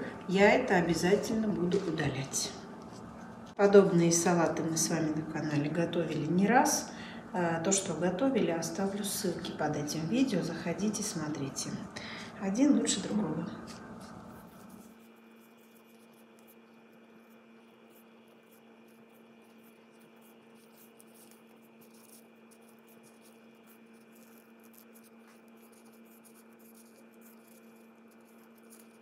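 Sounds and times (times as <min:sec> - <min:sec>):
faint electrical hum: 0:00.0 - 0:29.0
soft rustles of tearing meat: 0:13.5 - 0:29.0.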